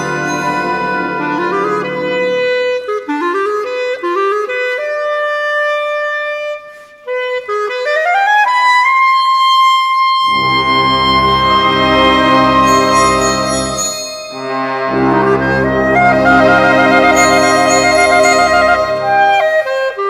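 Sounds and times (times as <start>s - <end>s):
full orchestra with brass: 0.0s - 6.6s, 10.2s - 20.0s
solo clarinet runs: 10.2s - 20.0s.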